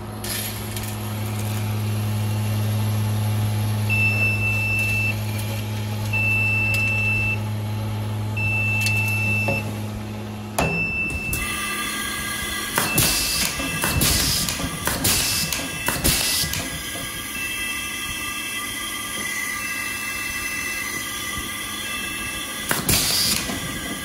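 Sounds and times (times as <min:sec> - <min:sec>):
high electronic beeps: 0:03.9 - 0:05.2, 0:06.2 - 0:07.4, 0:08.4 - 0:09.7, 0:10.7 - 0:11.6, 0:17.3 - 0:18.7, 0:19.3 - 0:21.0, 0:21.8 - 0:22.5.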